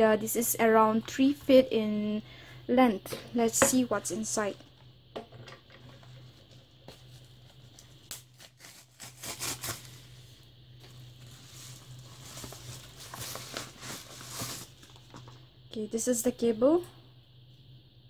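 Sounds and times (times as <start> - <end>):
paper envelope crinkling and tearing: 6.9 - 15.0.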